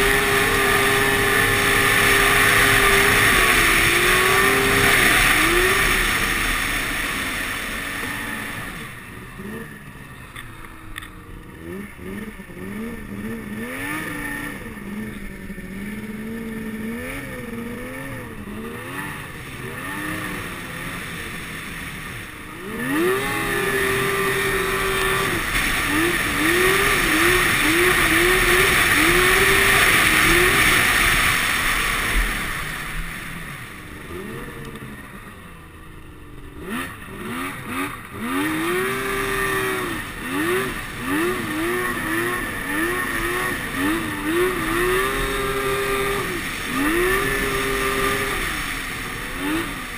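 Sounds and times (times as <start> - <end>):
snowmobile engine revving: 0.0 - 49.9.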